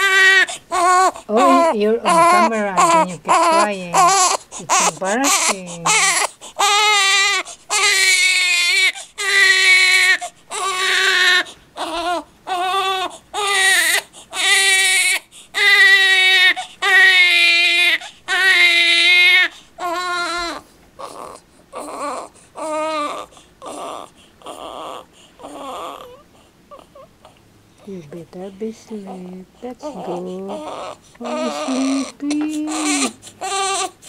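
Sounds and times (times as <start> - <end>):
infant crying: 0.0 - 27.4, 29.8 - 34.0.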